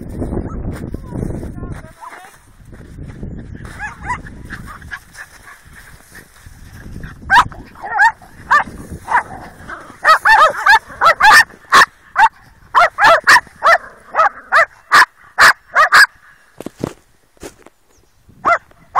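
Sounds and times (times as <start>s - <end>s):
small dogs barking: 3.7s - 6.1s, 7.3s - 16.2s, 18.4s - 18.7s.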